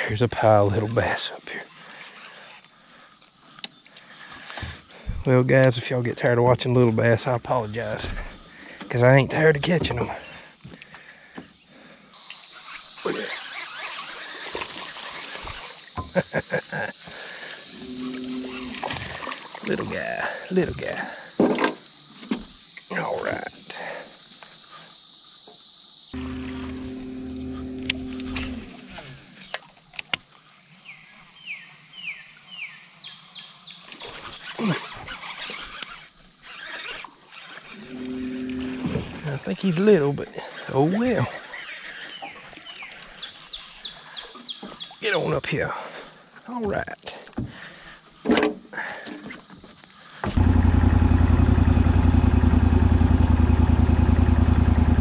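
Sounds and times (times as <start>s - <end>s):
insect chorus buzzing: 0.0s - 54.5s
water splashing and churning: 13.0s - 16.0s, 17.1s - 20.6s.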